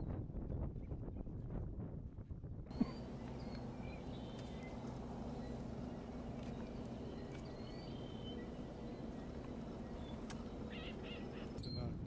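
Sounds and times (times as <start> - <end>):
small birds chirping: 2.7 - 12.0
steady low hum: 2.7 - 12.0.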